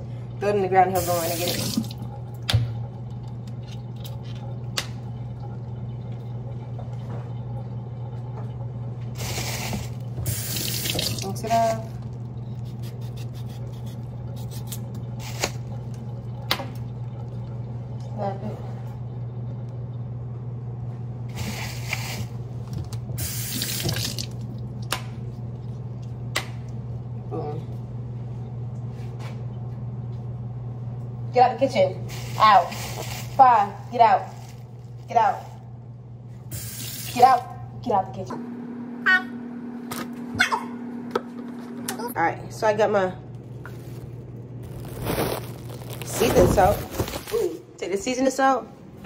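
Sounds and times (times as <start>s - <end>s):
faucet running water: 0.0s - 19.2s, 21.3s - 26.8s, 36.4s - 37.9s
steady low hum: 0.0s - 49.0s
low hum: 1.8s - 21.3s.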